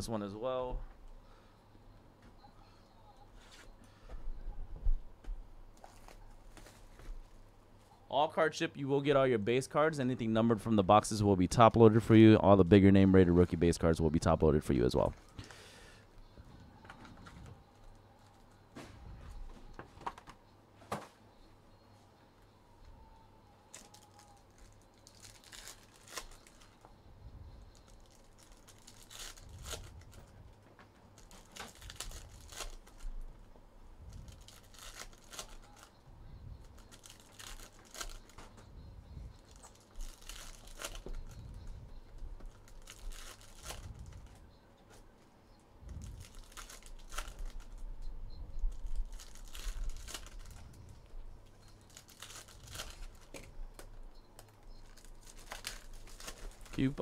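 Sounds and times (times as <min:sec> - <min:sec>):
wrappers crinkling: 0:05.8 - 0:07.4, 0:23.7 - 0:26.9, 0:27.6 - 0:36.0, 0:36.6 - 0:38.6, 0:39.3 - 0:44.4, 0:45.9 - 0:47.8, 0:48.6 - 0:57.0
foil wrappers tearing: 0:23.7 - 0:26.8, 0:27.7 - 0:30.3, 0:31.2 - 0:33.2, 0:34.1 - 0:35.9, 0:36.6 - 0:38.5, 0:39.5 - 0:41.4, 0:42.5 - 0:44.4, 0:46.0 - 0:47.8, 0:48.8 - 0:50.8, 0:51.7 - 0:53.5, 0:54.8 - 0:57.0.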